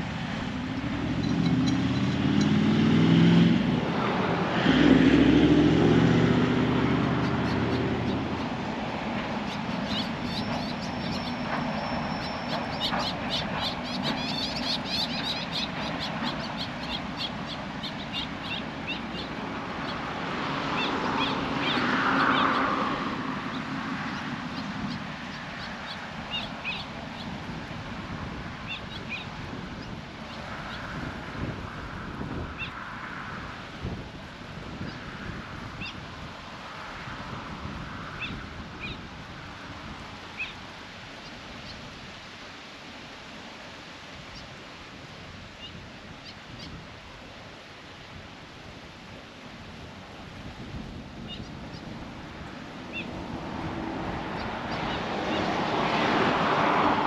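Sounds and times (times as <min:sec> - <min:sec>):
birds chirping: 0:00.6 - 0:02.9, 0:06.8 - 0:27.5, 0:52.9 - 0:53.2, 0:54.2 - 0:55.8.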